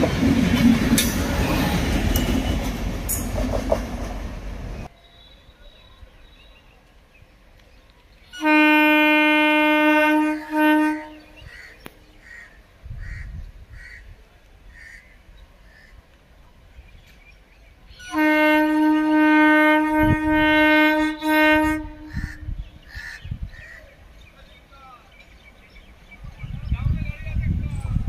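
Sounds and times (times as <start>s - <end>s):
train horn blasts: 8.3s - 11.5s, 18.0s - 22.6s.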